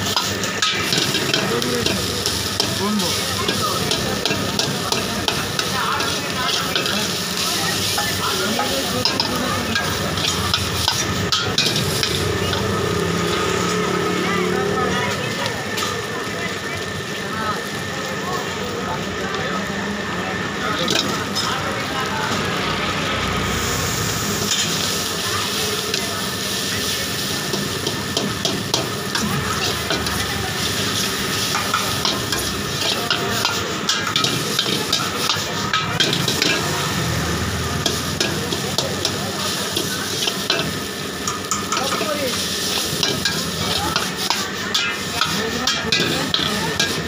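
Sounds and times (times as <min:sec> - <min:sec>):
noodles sizzling in a wok: 0:00.0 - 0:47.0
ladle clanking against wok: 0:00.1 - 0:12.7, 0:26.6 - 0:36.9, 0:37.7 - 0:47.0.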